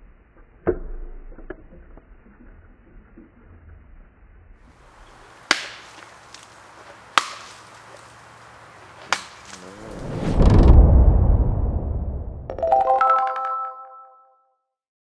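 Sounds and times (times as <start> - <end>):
bat whacking fruit on wood: 5.4 - 8.2, 8.9 - 9.7
low rushing whoosh: 9.6 - 12.5.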